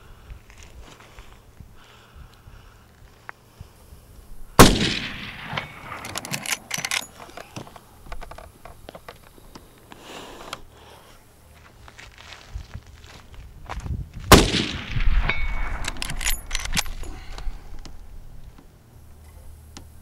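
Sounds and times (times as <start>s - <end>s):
rifle shot with echo: 4.6s - 6.8s, 14.3s - 16.1s.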